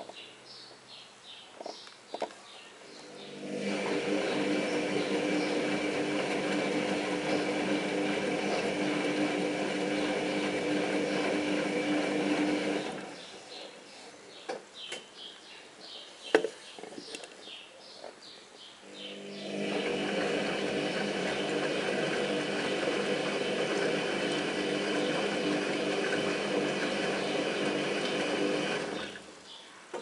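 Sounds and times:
washing machine drum motor humming: 3.0s - 13.2s, 19.1s - 29.3s.

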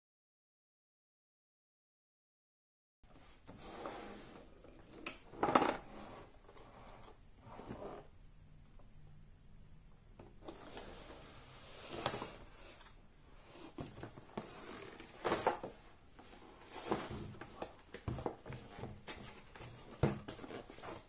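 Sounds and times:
cardboard box rustling and scraping: 10.4s - 21.0s.

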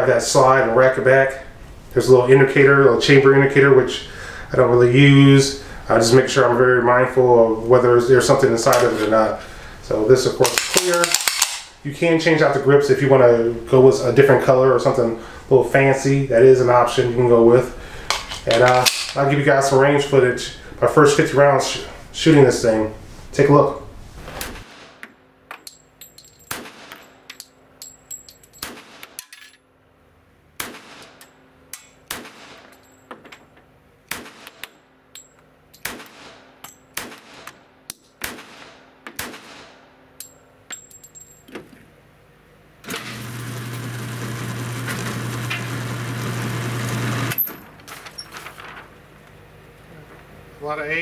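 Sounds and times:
pistol shots echoing: 26.5s - 27.3s, 28.6s - 29.2s, 30.6s - 31.2s, 32.0s - 32.7s, 34.1s - 34.6s, 35.8s - 37.6s, 38.2s - 39.8s
electric target carrier humming: 42.8s - 47.8s.

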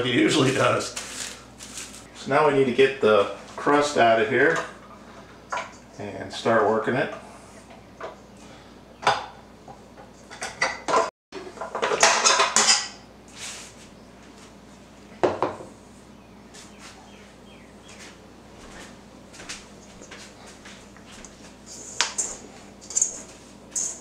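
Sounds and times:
rustling and scraping: 0.2s - 2.1s, 13.3s - 14.6s, 17.9s - 24.0s
dishes and utensils clinking: 10.3s - 13.0s.

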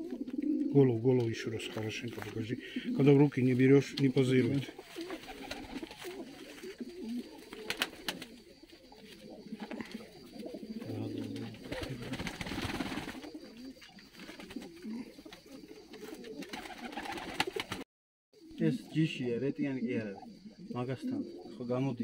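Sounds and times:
pigeons cooing: 0.0s - 17.8s, 18.4s - 22.0s
rustle: 3.2s - 16.6s.

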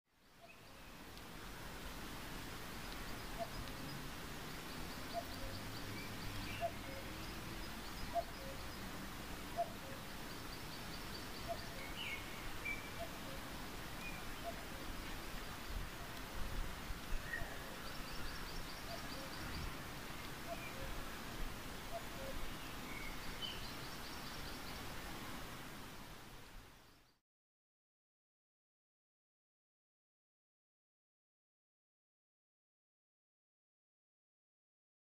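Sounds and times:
steady hiss: 0.2s - 27.1s.

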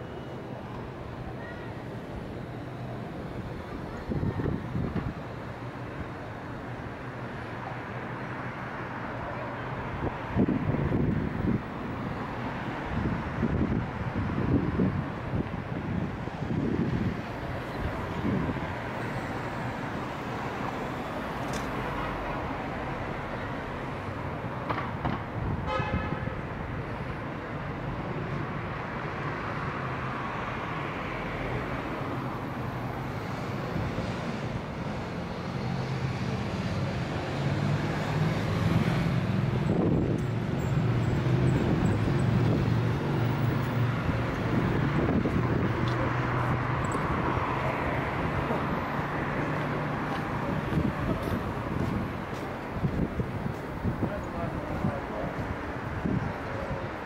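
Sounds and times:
road traffic passing: 0.0s - 57.0s
vehicle horn toot: 25.6s - 26.4s.

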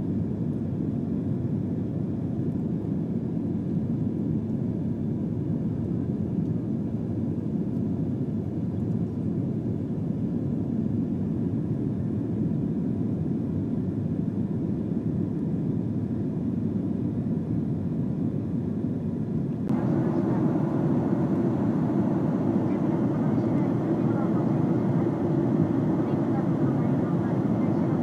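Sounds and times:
airliner cabin engine rumble: 0.0s - 28.0s.

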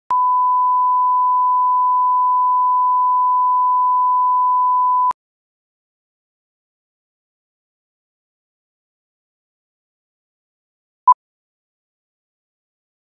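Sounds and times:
steady test tone beep: 0.1s - 5.2s.

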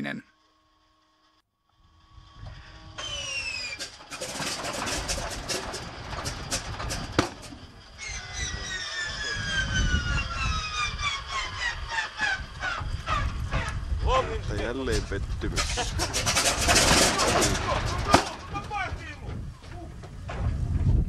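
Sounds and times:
falling whines: 1.7s - 14.0s
radial engine starting: 1.8s - 19.0s
sharp crack: 15.5s - 18.6s.

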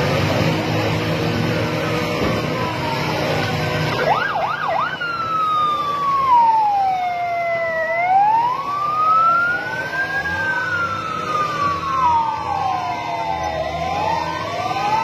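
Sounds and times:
loud siren wailing: 0.0s - 15.0s
faint second siren wailing: 0.3s - 15.0s.

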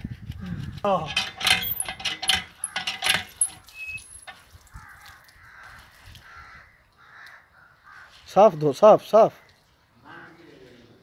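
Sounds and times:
hand pump clanks and squeaks: 0.9s - 4.5s
water splashing onto concrete: 3.4s - 6.4s.

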